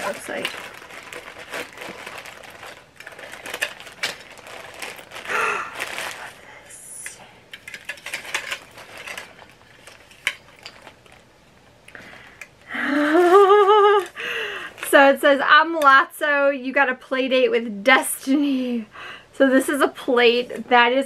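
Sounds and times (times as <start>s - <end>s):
packaging rustling and crinkling: 0.0s - 11.4s.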